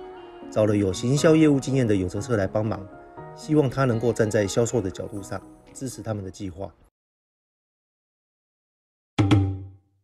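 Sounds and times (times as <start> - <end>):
percussive transition hit: 9.2 - 9.8.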